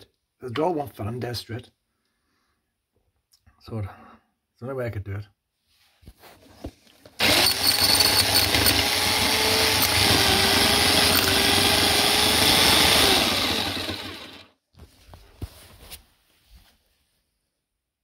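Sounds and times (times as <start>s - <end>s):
drill boring through wall: 7.2s - 14.5s.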